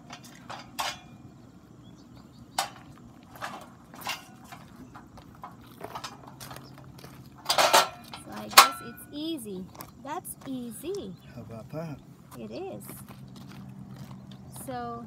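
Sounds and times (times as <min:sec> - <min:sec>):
steel scaffold parts clanking: 0:00.0 - 0:01.4, 0:02.5 - 0:09.3.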